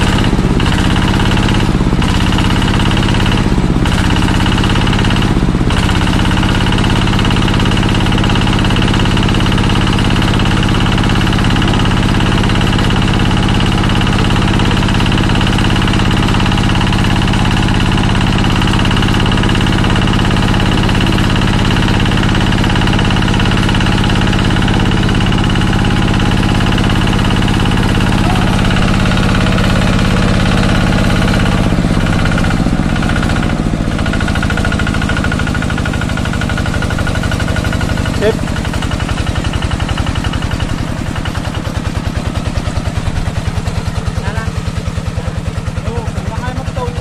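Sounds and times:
diesel engine knocking: 0.0 - 47.0
pump spitting water and air: 0.0 - 47.0.

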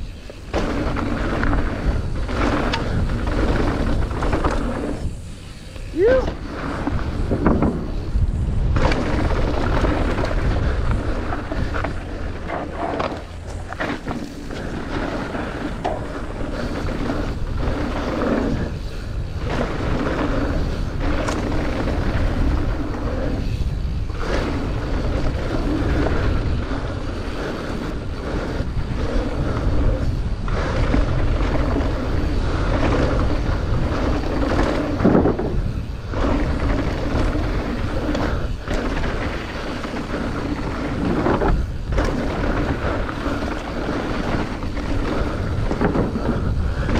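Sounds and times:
bike tyres on dirt: 0.0 - 46.9
wind rush: 0.0 - 46.9
bike knocks: 7.2 - 8.0, 34.5 - 35.7.

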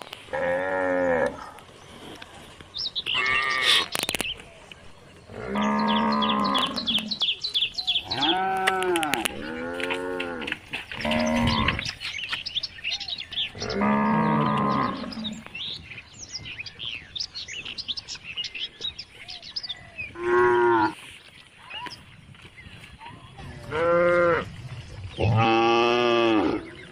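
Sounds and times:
small birds chirping: 0.0 - 26.9
cattle mooing: 5.3 - 7.1, 8.1 - 11.9, 13.6 - 15.4, 25.2 - 26.7.

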